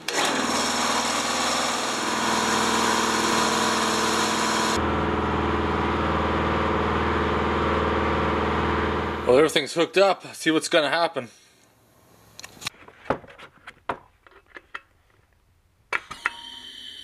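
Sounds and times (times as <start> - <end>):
air compressor running: 0.0 - 9.3.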